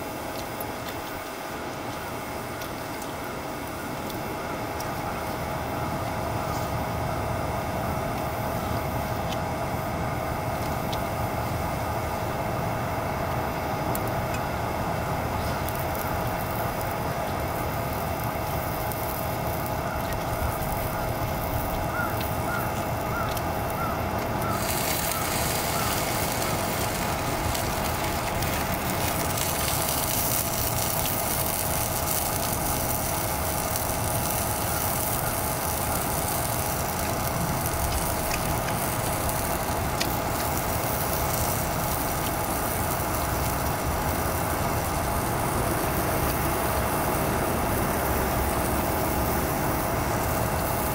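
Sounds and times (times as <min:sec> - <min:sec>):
gas stove burning: 0:00.0 - 0:50.9
food sizzling in a frying pan: 0:15.2 - 0:50.9.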